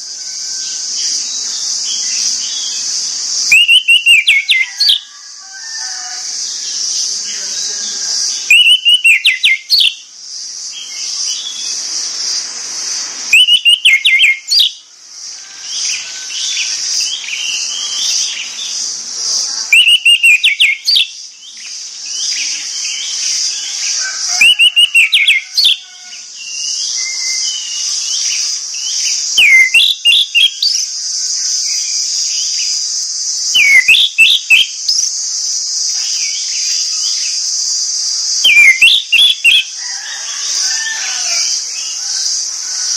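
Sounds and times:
high-pitched hiss: 0.0s - 42.9s
thrush singing whistled phrases: 3.4s - 5.0s, 8.3s - 10.0s, 13.2s - 14.8s, 19.5s - 23.1s, 24.3s - 25.8s, 26.4s - 30.9s, 31.6s - 39.8s
soft bird twittering: 6.6s - 10.1s, 10.7s - 14.9s, 15.7s - 42.9s.

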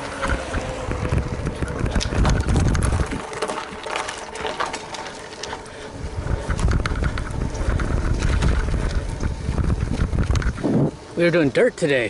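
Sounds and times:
bike rattling clicks: 0.0s - 10.8s
wind rumble on microphone: 0.0s - 11.2s
bike tyres crunching gravel: 0.0s - 12.0s.

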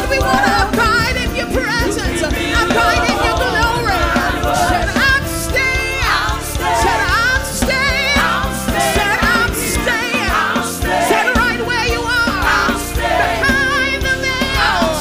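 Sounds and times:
drum hits: 0.0s - 15.0s
gospel choir singing in harmony: 0.0s - 15.0s
sustained keyboard chords: 0.0s - 15.0s.

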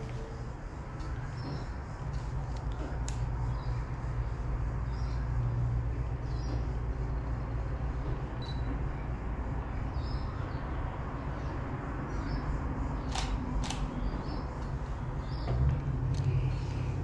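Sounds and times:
camera shutter clicks: 13.1s - 13.9s.

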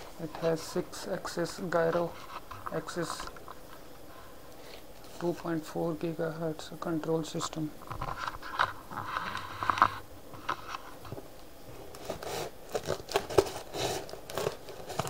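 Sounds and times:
cardboard packaging crinkling: 11.8s - 15.0s.

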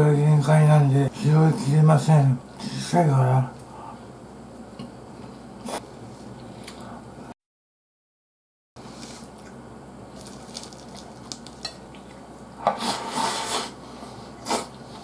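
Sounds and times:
loud slurp: 12.8s - 13.8s, 14.4s - 14.8s.

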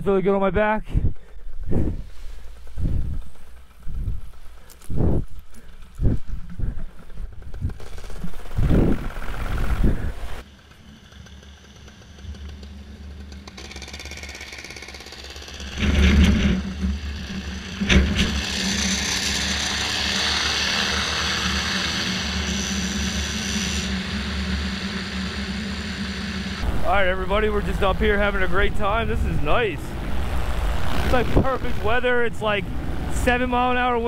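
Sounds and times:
wind rush over microphone: 0.9s - 10.4s, 27.6s - 33.0s
paramotor engine at full power: 1.1s - 34.0s.

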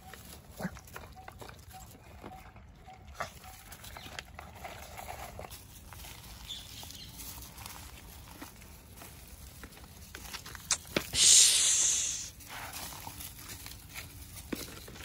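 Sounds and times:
dogs moving on dry leaves: 0.0s - 2.3s, 3.2s - 11.1s, 11.8s - 15.0s
puppies eating from plastic bowls: 0.0s - 11.1s, 12.4s - 15.0s.

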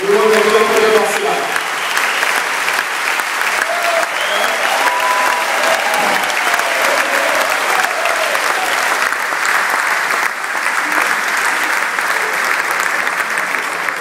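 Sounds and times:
audience applauding: 0.0s - 14.0s.

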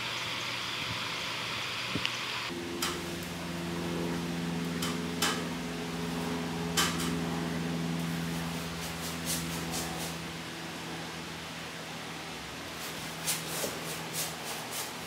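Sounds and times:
low hum: 2.5s - 13.3s
brush scrubbing on canvas: 8.1s - 10.3s, 12.7s - 15.0s.

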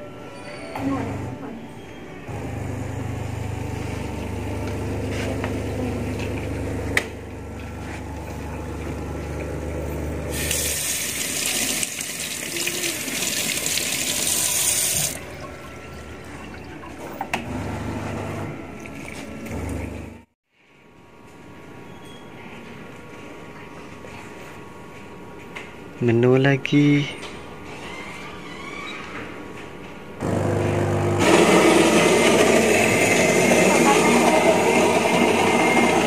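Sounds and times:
tap water running into sink: 10.3s - 15.7s.

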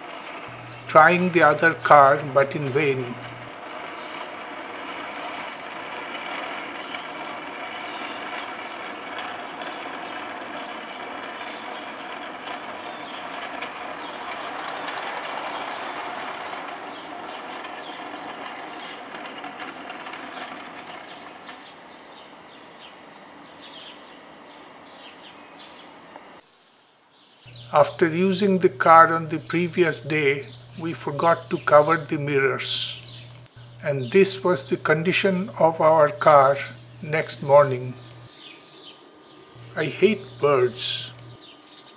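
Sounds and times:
vehicle passing with mechanical rumble: 0.1s - 26.4s.

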